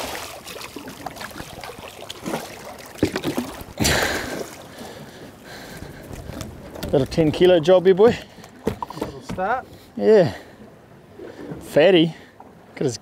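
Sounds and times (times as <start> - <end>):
fish thrashing and splashing: 0.0 - 6.9.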